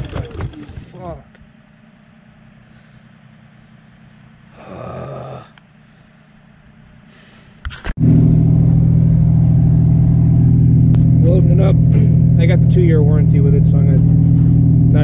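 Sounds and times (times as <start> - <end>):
faint steady hum: 0.0 - 15.0
engine running loud: 8.0 - 15.0.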